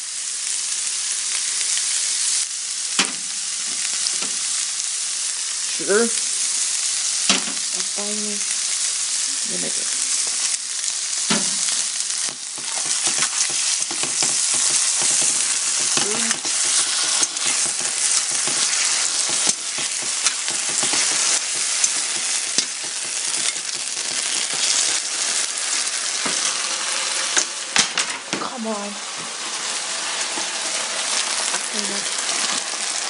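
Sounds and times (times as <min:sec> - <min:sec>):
vegetables sizzling in a frying pan: 0:00.0 - 0:33.0
spatula scraping a pan: 0:11.3 - 0:27.4.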